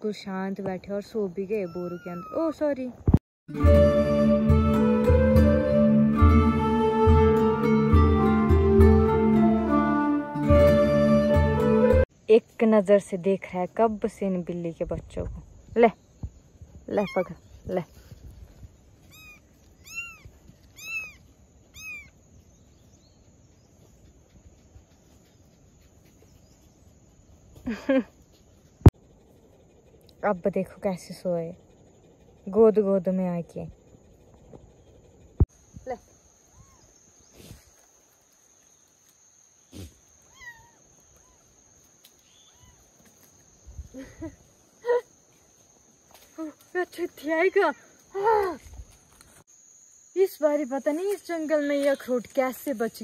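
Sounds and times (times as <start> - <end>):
kitten mewing: 1.6 - 2.5, 19.1 - 21.2, 21.8 - 22.1.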